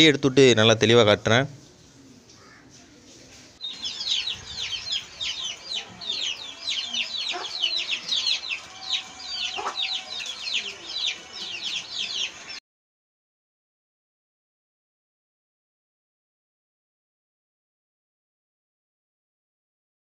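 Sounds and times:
many birds chirping: 1.7 - 12.6.

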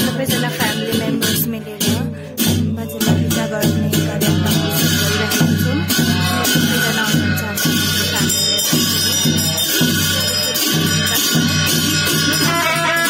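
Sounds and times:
cymbals beating: 0.0 - 13.0
shawms sustained reedy notes: 2.8 - 13.0.

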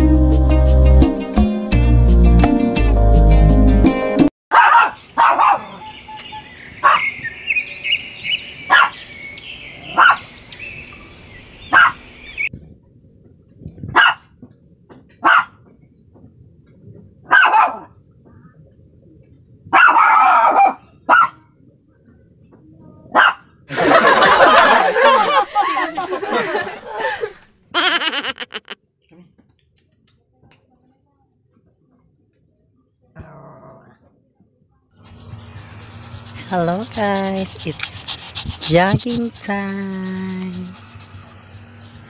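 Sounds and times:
puppy yapping: 4.5 - 5.9.

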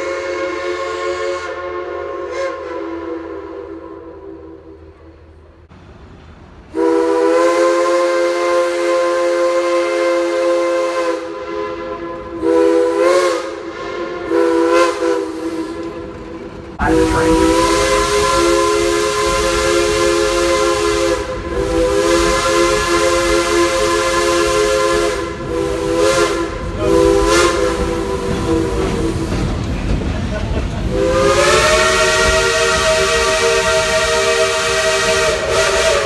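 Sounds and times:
steam whistle chord: 6.7 - 15.9, 16.8 - 29.4, 30.9 - 36.0
steam hissing: 12.4 - 36.0.

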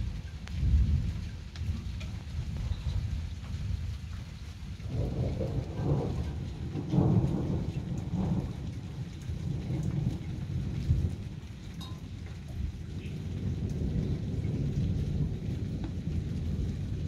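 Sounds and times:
rolling thunder: 4.8 - 11.7, 12.4 - 17.0.

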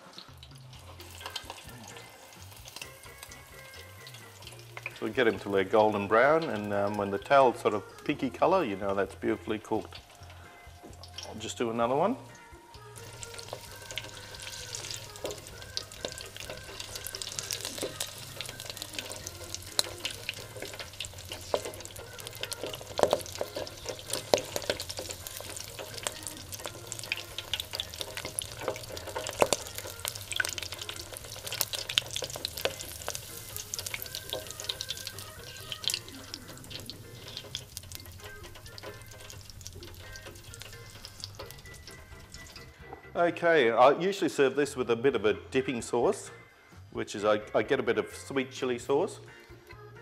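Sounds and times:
deep-frying sizzle with crackling pops: 0.0 - 7.4, 9.7 - 11.3, 13.0 - 42.7.

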